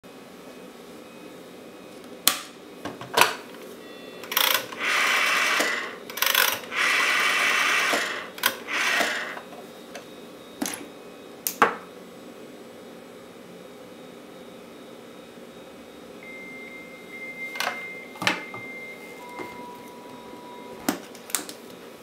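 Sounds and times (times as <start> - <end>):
rotary telephone dial whirring: 4.2 - 10.1.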